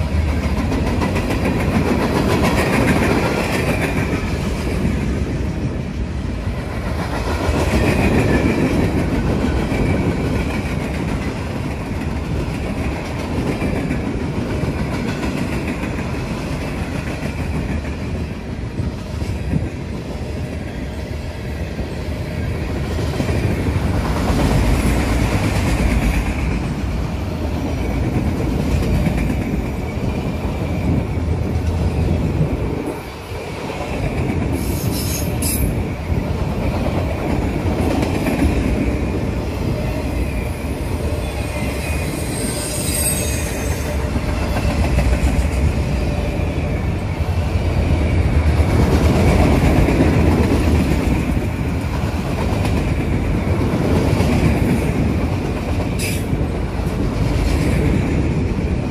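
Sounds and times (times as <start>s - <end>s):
train wheels rumbling on rail: 0.0s - 58.9s
high-pitched wheel squeals: 41.2s - 44.1s.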